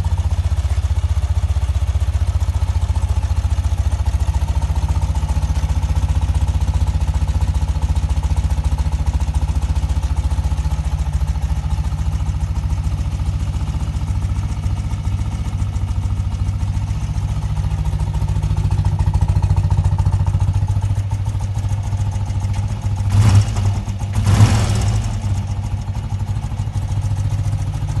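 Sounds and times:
motorcycle engine idling and revving: 0.0s - 28.0s.

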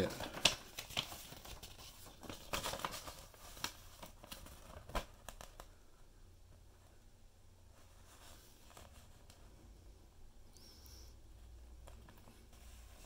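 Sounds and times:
paper leaflet rustling and crinkling: 0.0s - 5.8s.

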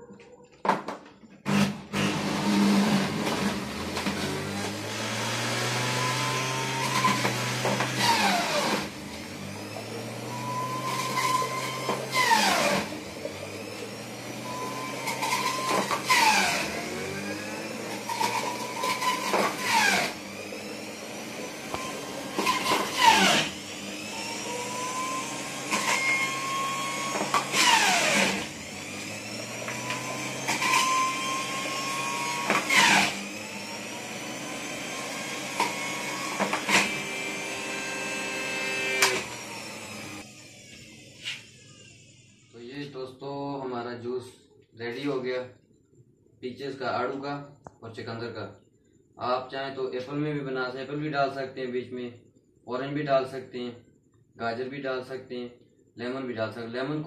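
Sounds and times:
juicer motor running: 1.4s - 42.5s.

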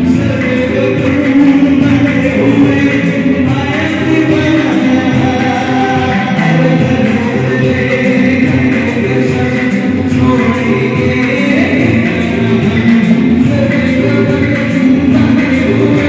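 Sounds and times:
loud dance music with singing: 0.0s - 16.0s.

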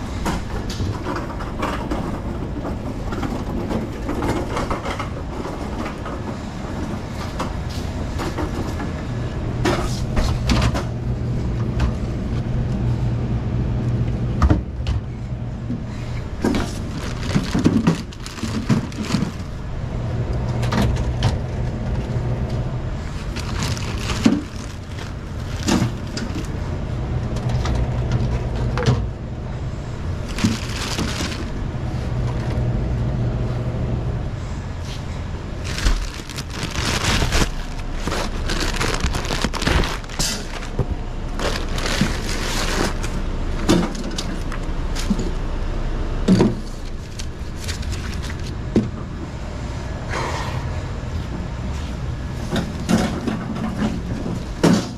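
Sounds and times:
steady low rumble: 0.0s - 54.6s
plastic bottles knocking: 16.5s - 19.6s
plastic shrink-wrap crinkling and tearing: 16.6s - 19.7s, 23.2s - 26.6s, 30.2s - 31.6s, 35.6s - 43.2s, 46.8s - 48.6s.

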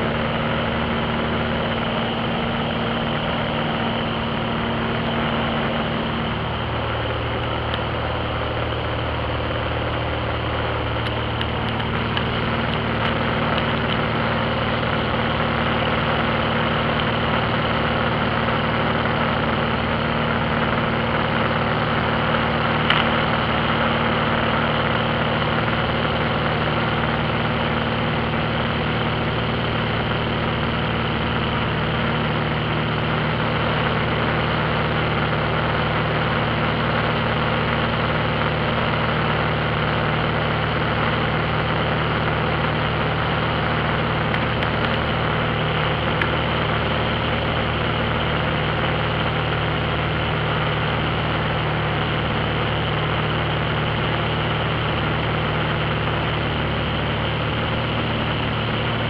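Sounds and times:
airplane engine and propeller drone: 0.0s - 59.0s.

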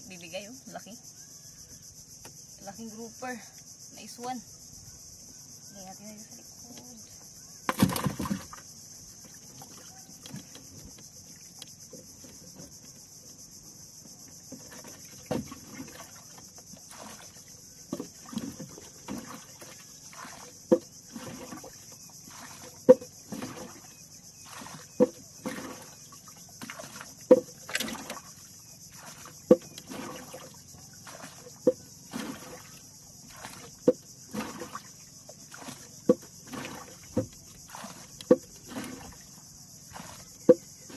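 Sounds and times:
paddle splash: 7.4s - 13.3s, 14.3s - 40.9s
paddle knocking on hull: 7.6s - 11.1s, 14.4s - 40.9s
thump: 7.7s - 8.6s.

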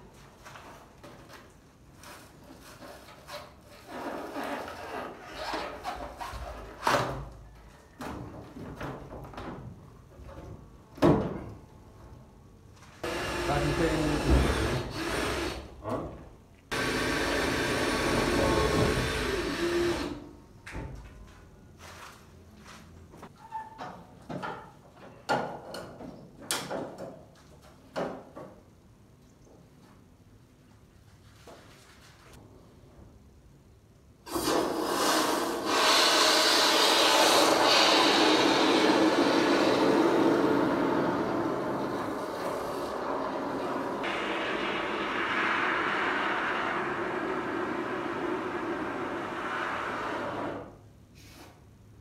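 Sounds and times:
electric power tool running: 13.0s - 15.6s, 16.7s - 20.2s
power tool running: 13.0s - 15.7s, 16.7s - 20.2s, 35.5s - 50.7s.

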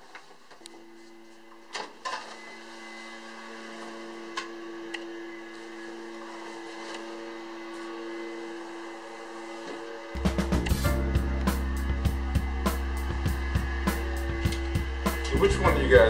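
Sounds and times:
low suspense drone: 10.2s - 16.0s.

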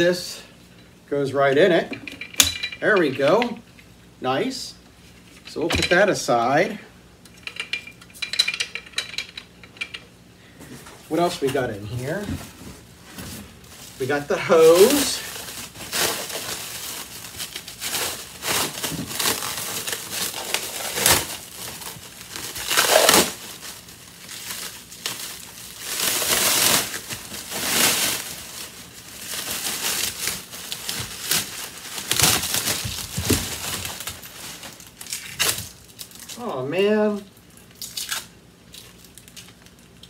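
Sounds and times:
plastic bag crinkling and rustling: 11.0s - 40.0s.

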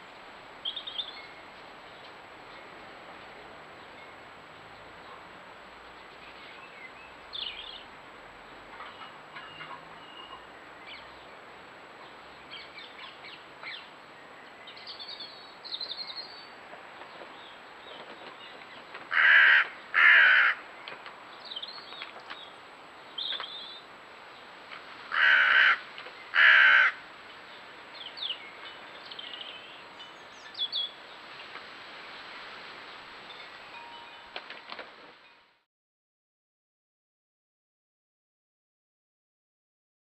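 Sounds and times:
faint songbird chirps: 0.6s - 2.9s, 8.5s - 18.9s, 20.7s - 24.5s, 27.4s - 31.6s
crow cawing: 19.1s - 20.6s, 25.1s - 27.0s.

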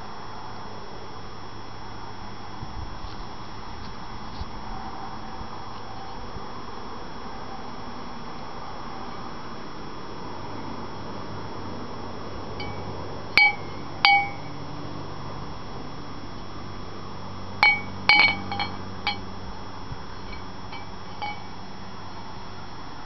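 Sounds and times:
candle cup clinking against glass: 17.6s - 19.2s, 20.3s - 21.5s.

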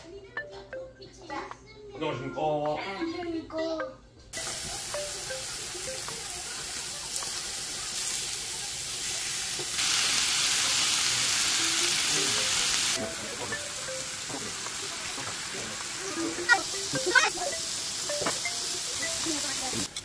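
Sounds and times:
food sizzling in frying pan: 4.4s - 20.0s
loud hiss: 9.3s - 13.0s.

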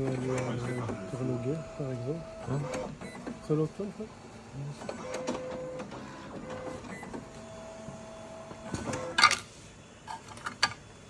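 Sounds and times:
small machine whirring: 0.0s - 9.2s.

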